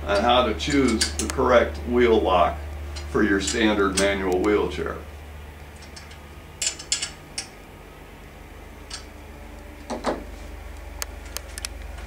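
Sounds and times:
wrench metallic clicks: 5.8 - 7.5.

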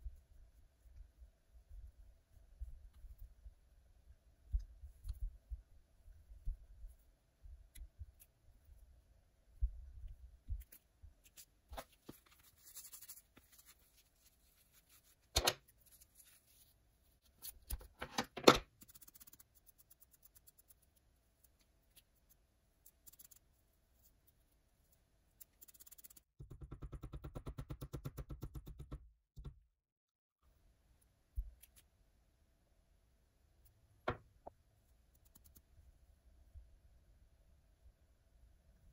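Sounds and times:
small clicks and scrapes: 10.5 - 26.4, 35.0 - 35.8.

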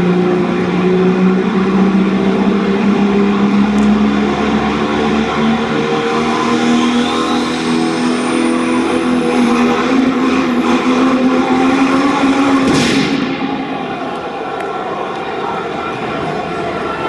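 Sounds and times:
diesel truck engine under load: 0.0 - 14.4
loud rushing burst: 11.5 - 14.1.

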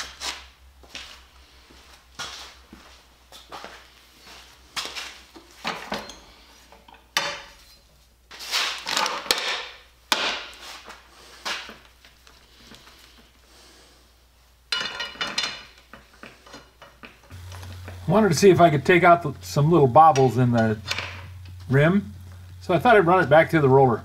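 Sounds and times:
steel tools clanking on metal: 5.6 - 7.8, 14.7 - 17.0.

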